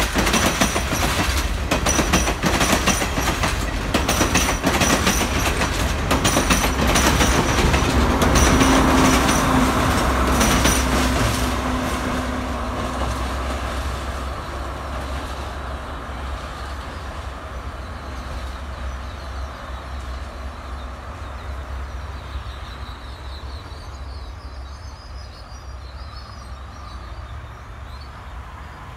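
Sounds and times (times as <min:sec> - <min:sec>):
train wheels clacking over rail joints: 0:00.0 - 0:15.6
low rumble of train: 0:00.0 - 0:28.9.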